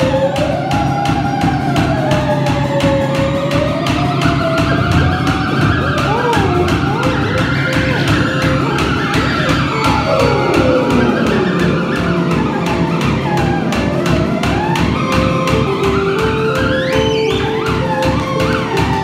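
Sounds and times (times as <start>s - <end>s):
theremin gliding: 0.0s - 19.0s
fast drum beat: 2.4s - 16.4s
rock band playing: 4.8s - 16.5s.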